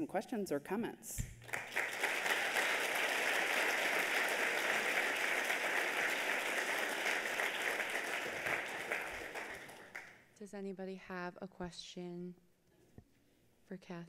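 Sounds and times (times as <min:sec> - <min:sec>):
audience applauding: 0:01.4 - 0:10.2.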